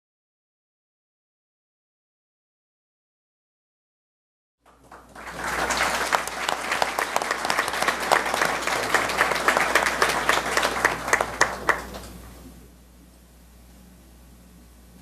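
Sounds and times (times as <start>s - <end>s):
audience applauding: 4.7s - 12.2s.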